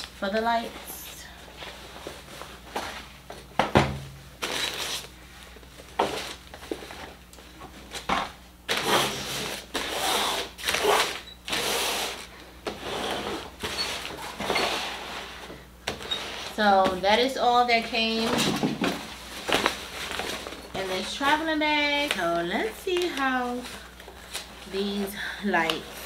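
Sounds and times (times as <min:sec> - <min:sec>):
boxes scraping on table: 0:07.9 - 0:16.7.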